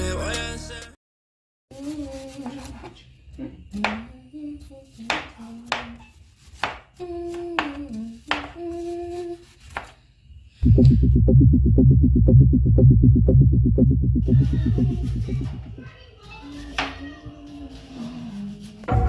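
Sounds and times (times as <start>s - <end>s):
knife chopping on wooden board: 5.1s - 8.6s, 9.6s - 10.0s
person humming: 7.0s - 9.5s.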